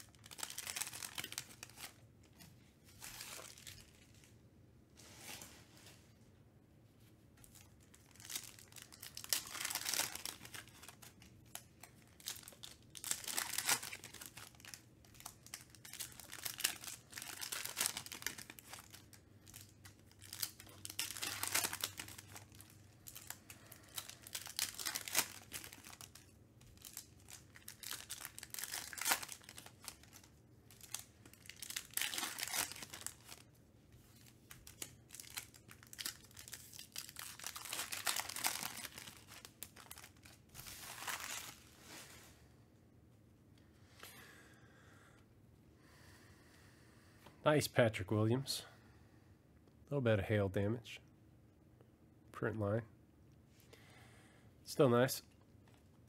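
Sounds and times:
foil wrappers crinkling and tearing: 0.0s - 2.0s, 3.0s - 4.3s, 7.4s - 33.5s, 34.1s - 42.2s.

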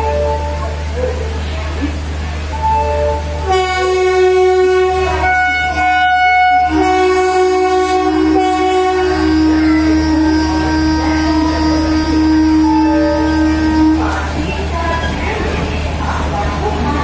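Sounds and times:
locomotive horn blast: 0.0s - 1.0s, 2.4s - 14.8s.

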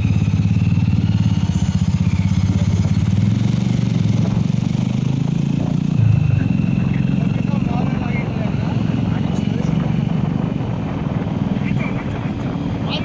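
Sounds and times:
road noise: 0.0s - 13.0s
vehicle engine running: 0.0s - 13.0s.

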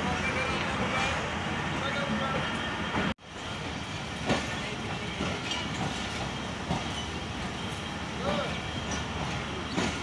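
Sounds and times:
train wheels rumbling on track: 0.0s - 10.0s.

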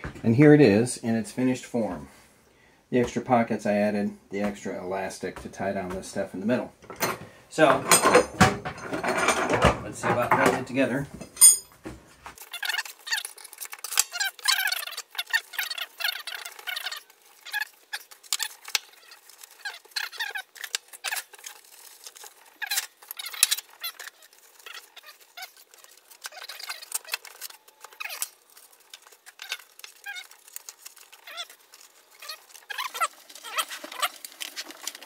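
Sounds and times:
metal tools clinking: 6.8s - 11.8s.

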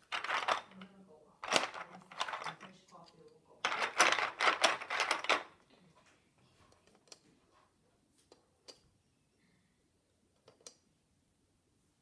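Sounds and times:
plastic pieces clicking together: 0.0s - 2.9s, 3.6s - 5.6s.

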